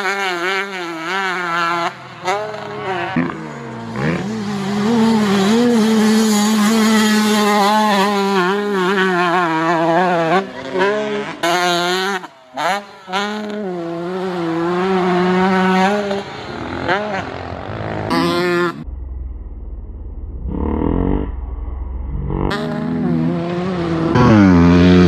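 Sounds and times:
dirt bike engine at high revs: 0.0 - 18.9, 20.5 - 21.5, 22.1 - 25.0.

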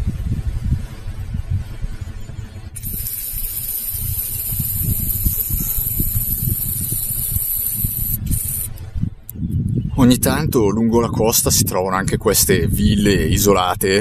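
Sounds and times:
wind buffeting microphone: 0.0 - 14.0
high-pitched hiss: 2.8 - 8.7.

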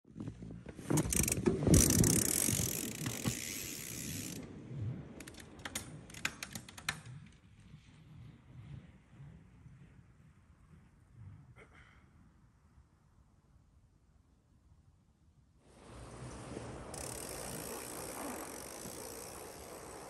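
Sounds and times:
bike hub ratcheting and clicking: 0.9 - 4.4, 5.2 - 7.1, 17.0 - 20.0
bike tyres crunching through snow: 15.8 - 20.0.

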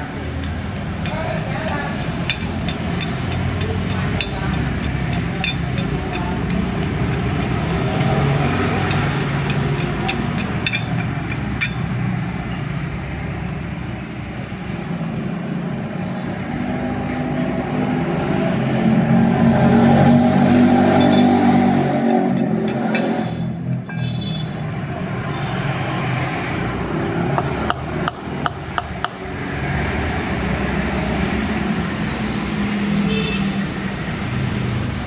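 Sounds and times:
vehicle engine running: 0.0 - 12.5
hand tool scratching rust: 0.7 - 11.8.

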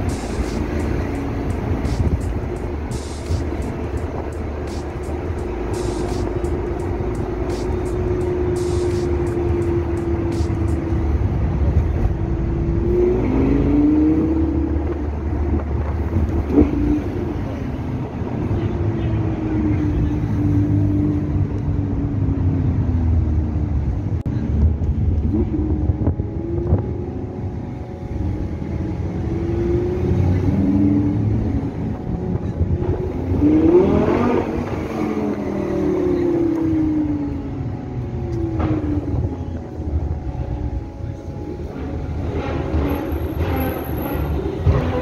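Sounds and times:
cars driving past: 0.0 - 45.0
steady traffic rumble: 0.0 - 45.0
car revving loudly: 33.1 - 37.3, 42.1 - 45.0.

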